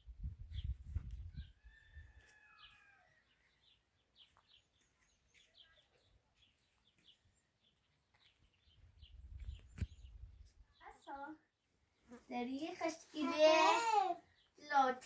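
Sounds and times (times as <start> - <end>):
small birds chirping: 0.2 - 15.0
distant rooster crowing: 1.4 - 3.6.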